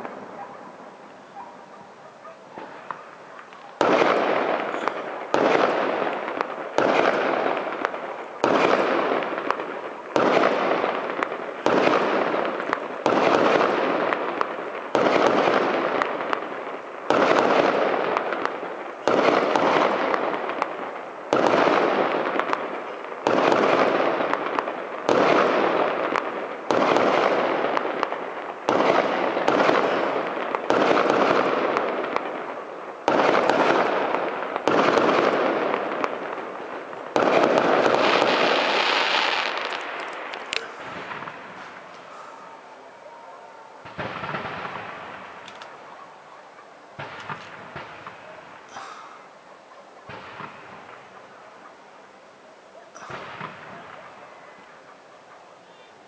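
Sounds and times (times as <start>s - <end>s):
firework shells bursting: 2.6s - 42.7s, 47.0s - 49.4s.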